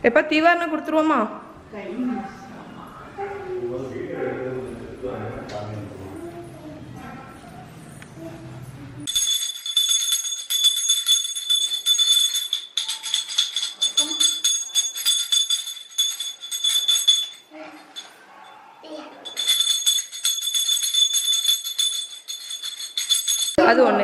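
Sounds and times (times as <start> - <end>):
hand bell ringing rapidly: 9.1 - 18.1, 19.2 - 23.6.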